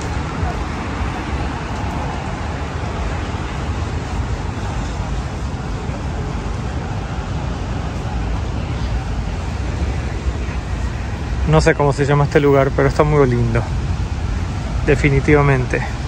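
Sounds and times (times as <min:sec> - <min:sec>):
city road traffic: 0:00.0 - 0:16.0.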